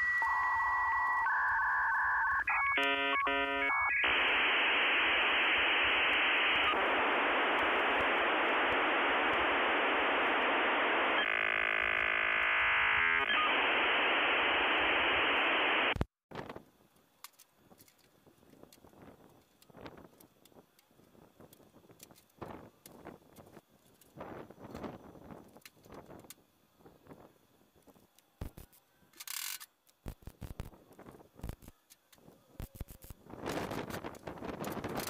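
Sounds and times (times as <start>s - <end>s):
modem steady tones: 0.0s - 16.0s
buzzing tones: 1.8s - 16.0s.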